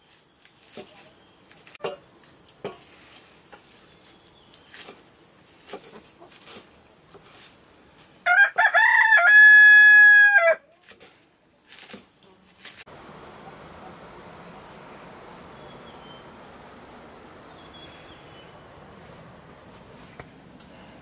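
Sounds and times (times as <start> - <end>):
sickle blade cutting leafy greens: 0.0 - 7.6, 10.7 - 12.9
rooster crowing: 8.2 - 10.6.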